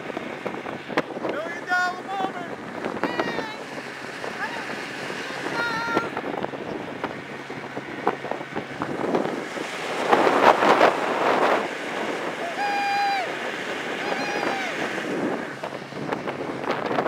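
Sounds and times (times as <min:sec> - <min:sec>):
outboard motor: 0:00.0 - 0:17.0
water rushing past hull: 0:00.0 - 0:17.0
wind buffeting microphone: 0:00.0 - 0:17.0
short high-pitched voice: 0:14.0 - 0:14.8.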